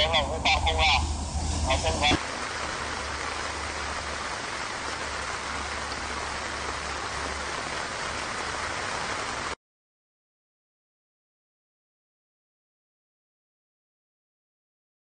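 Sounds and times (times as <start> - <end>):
low rumble: 0.0 - 4.3
heavy rain pouring: 0.0 - 9.6.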